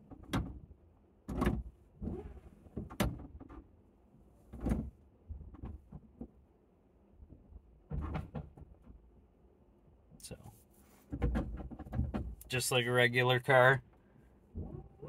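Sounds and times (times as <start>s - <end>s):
car clunks and creaks: 1.3s - 3.7s, 4.4s - 6.4s, 7.3s - 9.0s, 11.0s - 12.6s.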